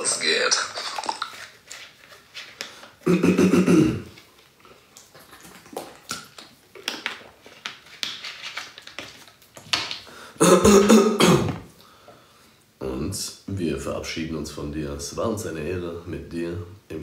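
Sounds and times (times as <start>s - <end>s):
man gulping: 0.0s - 1.6s, 2.9s - 7.4s, 10.4s - 11.9s.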